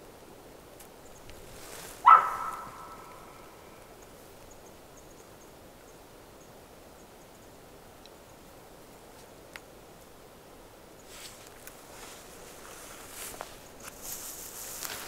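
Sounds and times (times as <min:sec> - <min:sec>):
elk call: 0:02.0 - 0:03.8.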